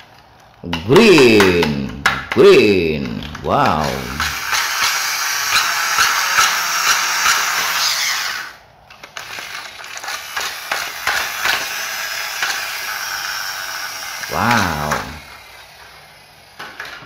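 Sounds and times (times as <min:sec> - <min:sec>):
plastic toy scooter rattling: 0:08.8 - 0:13.3, 0:14.2 - 0:17.0.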